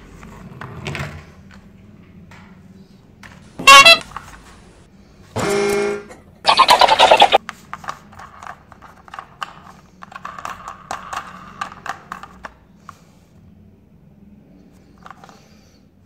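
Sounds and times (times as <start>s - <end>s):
toy electronic sound effect: 3.7s - 4.0s, 6.5s - 7.4s
plastic toy clicks and rattles: 7.7s - 12.6s.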